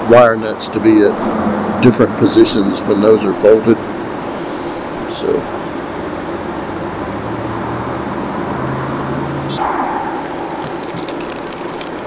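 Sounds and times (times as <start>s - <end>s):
steady low hum: 0.0s - 12.0s
sharp plastic clicks and crackles: 10.6s - 12.0s.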